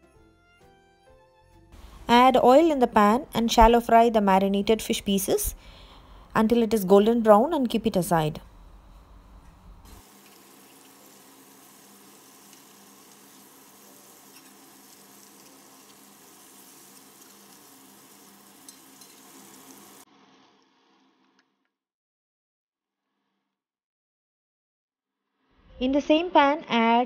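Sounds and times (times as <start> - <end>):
fish sizzling in hot oil: 9.9 - 20.1.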